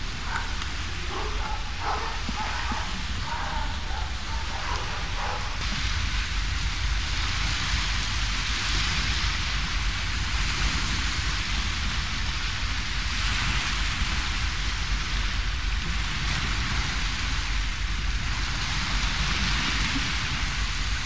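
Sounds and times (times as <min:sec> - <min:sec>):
low rumble: 0:00.0 - 0:13.2
steady rushing noise: 0:00.0 - 0:21.0.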